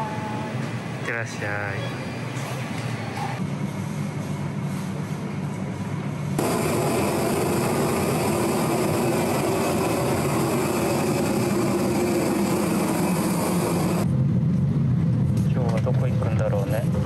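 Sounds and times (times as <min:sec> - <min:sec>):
train rumbling and rushing: 0:00.0 - 0:17.0.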